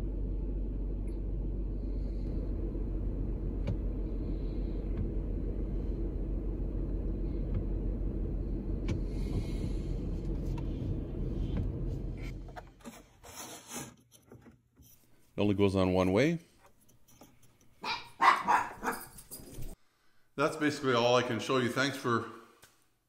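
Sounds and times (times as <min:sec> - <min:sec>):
minivan engine idling: 0:00.0 - 0:12.8.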